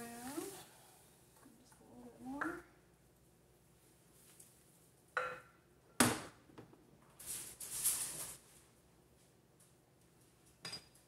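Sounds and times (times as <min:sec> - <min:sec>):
soft hissing scraping: 0:00.0 - 0:01.2.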